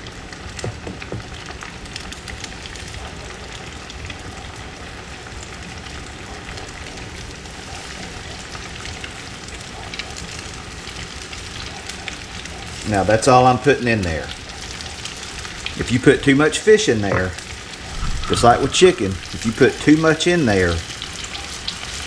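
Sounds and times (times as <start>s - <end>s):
fish sizzling in hot oil: 0.0s - 22.0s.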